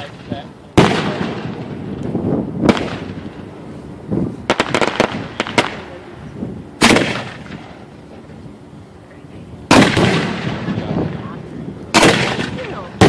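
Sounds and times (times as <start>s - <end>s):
firework boom: 0.0s - 3.4s
firework bangs: 0.0s - 8.5s, 9.2s - 13.0s
firework cracks: 0.0s - 8.6s, 9.5s - 13.0s.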